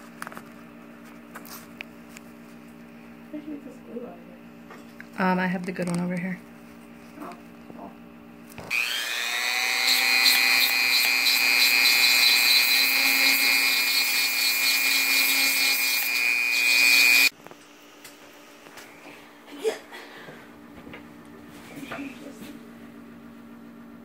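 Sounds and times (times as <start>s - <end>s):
rotary tool whining: 8.6s - 17.3s.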